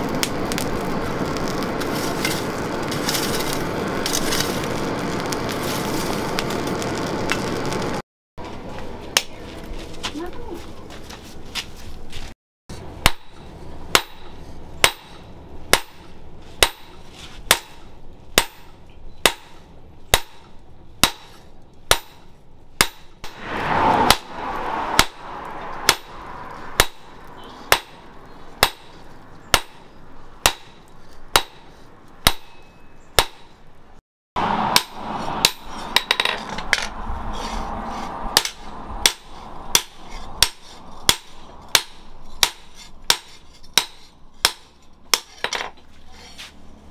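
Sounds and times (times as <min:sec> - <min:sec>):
hammer striking steel on anvil: 0:13.0 - 0:23.4, 0:25.0 - 0:25.2, 0:25.8 - 0:26.2, 0:26.8 - 0:27.1, 0:27.7 - 0:28.0, 0:28.6 - 0:33.5, 0:34.7 - 0:36.9, 0:38.3 - 0:45.7.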